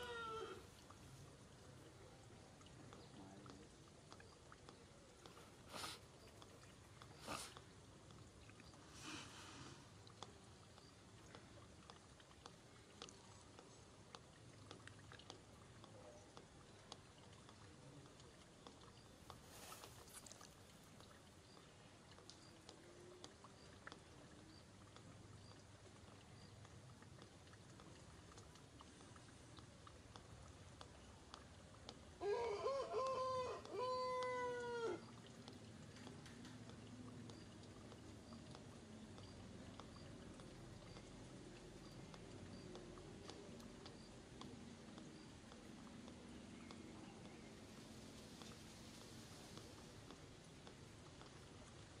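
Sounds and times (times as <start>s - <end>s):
faint outdoor ambience: 0.0s - 52.0s
brief rustling hisses: 5.7s - 6.0s, 7.2s - 7.6s
monkey chewing mouth clicks: 35.2s - 52.0s.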